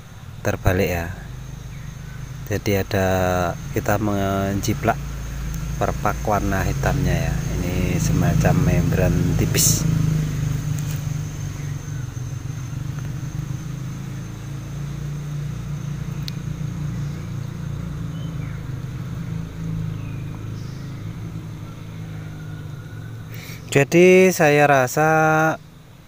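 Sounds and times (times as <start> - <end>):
low motor hum: 0.0 - 23.6
light click: 16.2 - 16.4.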